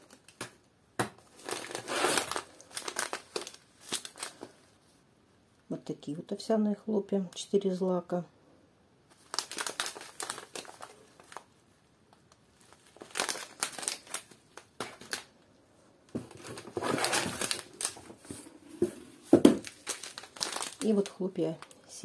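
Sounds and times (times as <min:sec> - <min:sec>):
plastic pouches crinkling: 0:00.0 - 0:04.8, 0:09.1 - 0:11.6, 0:12.2 - 0:15.4, 0:16.1 - 0:22.0.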